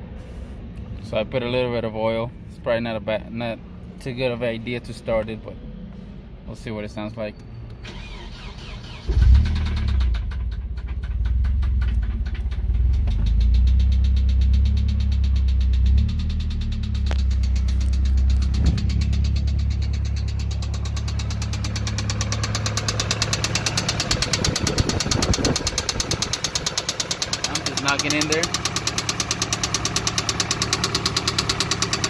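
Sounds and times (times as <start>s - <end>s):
engine idling: 7.9s - 32.0s
rapid knocking inside engine: 9.7s - 32.0s.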